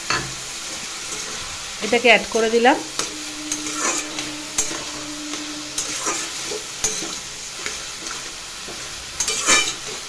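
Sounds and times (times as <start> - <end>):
cabbage sizzling: 0.3 - 9.5
spatula scraping metal pan: 3.0 - 7.1.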